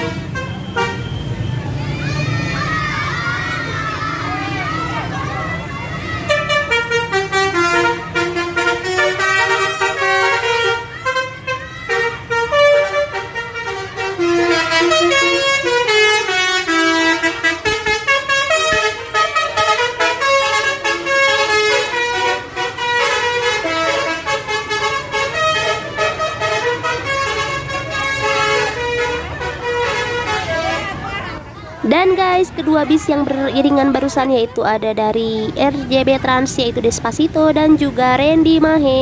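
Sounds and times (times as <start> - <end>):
musical air horns playing a tune: 0.0 - 1.0, 6.3 - 30.9
bus engines rumbling: 0.0 - 39.0.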